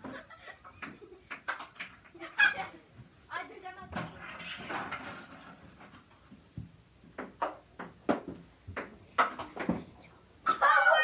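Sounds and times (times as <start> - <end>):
ping-pong ball knocking: 7.1 - 9.8.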